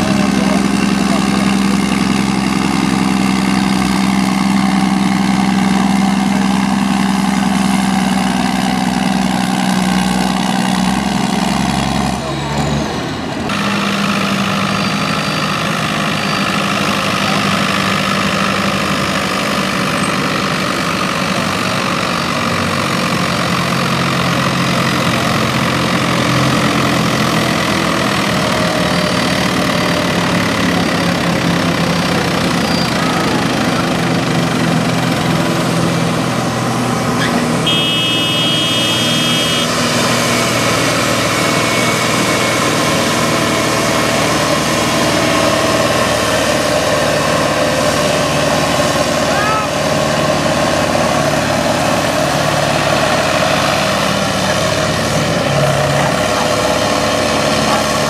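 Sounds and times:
tractor diesel engine under load: 0:00.0 - 0:58.0
short high-pitched tone: 0:37.7 - 0:39.8.

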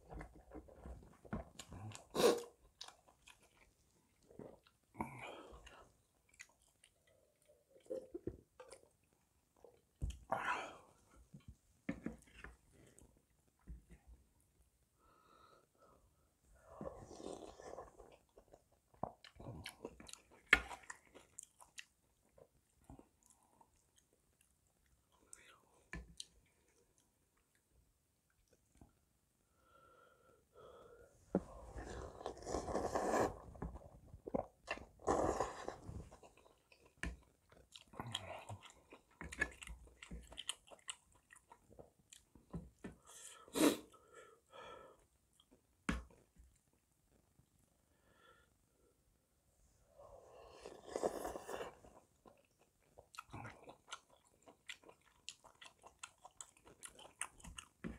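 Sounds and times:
wet chewing and mouth clicks: 0:36.1 - 0:42.8, 0:51.8 - 0:57.9.

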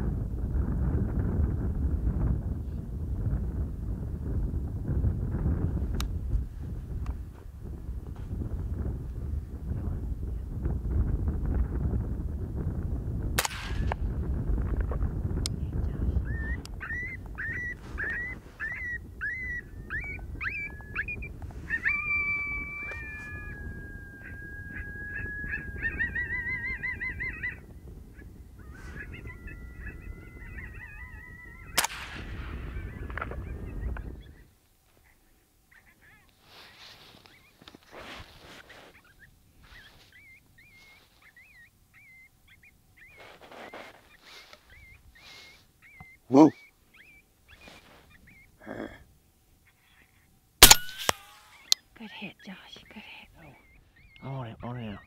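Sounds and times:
coyote yips: 0:16.2 - 0:31.9, 0:32.5 - 0:37.8, 0:38.6 - 0:48.9, 0:49.6 - 0:55.0
high warbling bird-like chirps: 0:16.3 - 0:27.6, 0:39.0 - 0:43.2, 0:44.1 - 0:48.5, 0:50.6 - 0:55.0
coyotes howling: 0:16.3 - 0:36.3.

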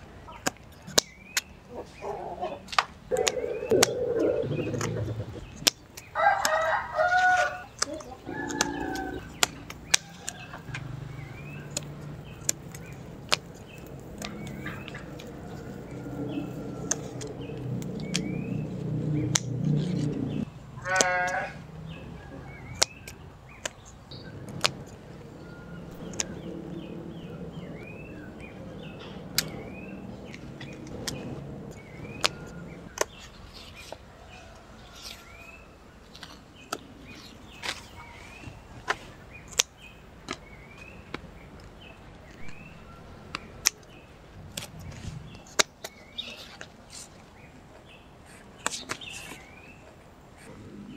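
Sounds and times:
bird chirps: 0:00.9 - 0:06.2, 0:07.0 - 0:21.0
low drawn-out animal call: 0:02.0 - 0:05.7, 0:08.2 - 0:09.4, 0:14.3 - 0:22.5
scissors snipping stems: 0:11.7 - 0:18.6, 0:19.2 - 0:20.4.

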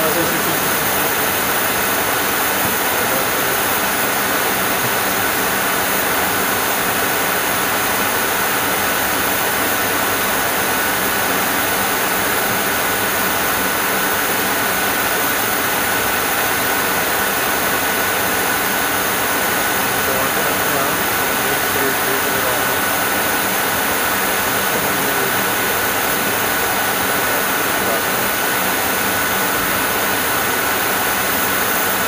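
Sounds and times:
airflow and jet engine rush: 0:00.0 - 0:32.0
thin high whine: 0:19.6 - 0:32.0.

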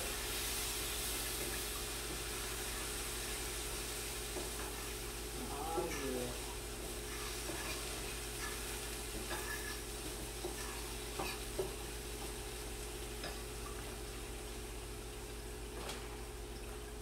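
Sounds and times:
chicken sizzling in a frying pan: 0:00.0 - 0:15.7
utensil scraping a pan: 0:07.1 - 0:11.6.

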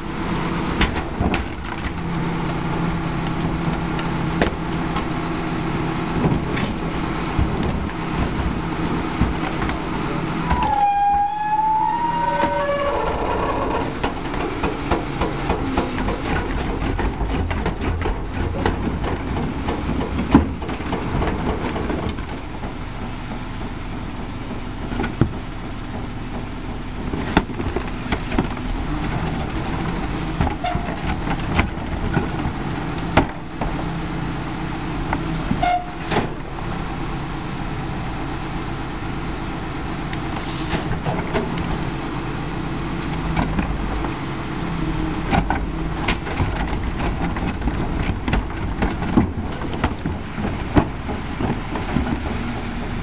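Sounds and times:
diesel truck engine running: 0:00.0 - 0:10.8, 0:11.6 - 0:53.0
carts knocking and banging: 0:12.3 - 0:22.8, 0:45.2 - 0:53.0.

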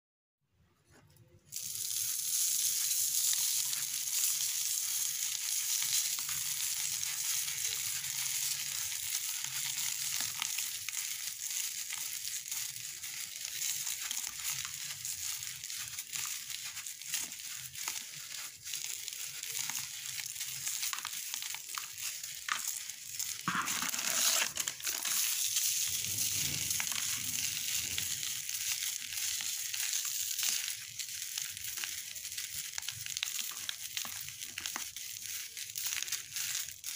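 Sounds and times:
crumbling grit crackling hiss: 0:13.2 - 0:36.9.

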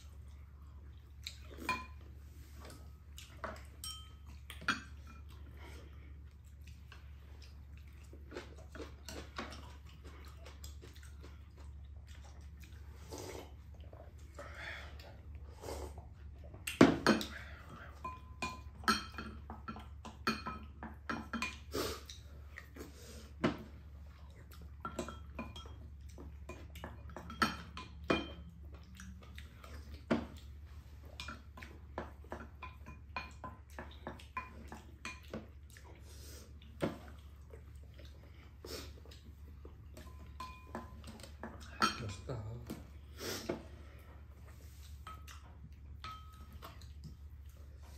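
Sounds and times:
low steady hum: 0:00.0 - 0:47.9
utensils clinking on ceramic bowls: 0:03.4 - 0:05.4, 0:17.0 - 0:21.7, 0:24.8 - 0:28.6, 0:40.0 - 0:42.6, 0:46.0 - 0:46.8.

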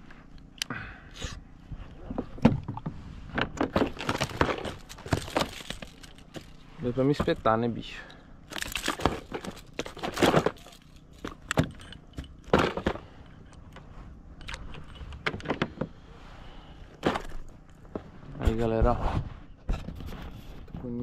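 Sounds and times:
lure hooks jangling: 0:04.1 - 0:06.7, 0:08.1 - 0:12.5.

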